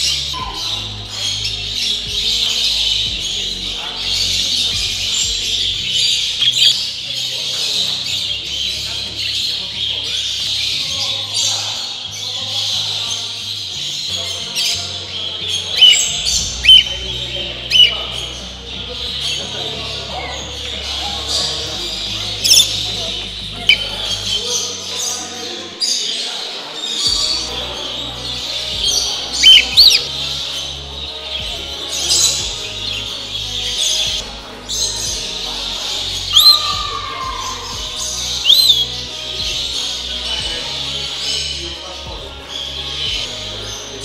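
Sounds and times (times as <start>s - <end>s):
caged birds chirping: 0.0s - 44.0s
quiet background music: 0.0s - 44.0s
loud whistled parrot calls: 15.8s - 17.0s, 17.7s - 18.1s, 28.8s - 30.1s, 36.2s - 39.1s.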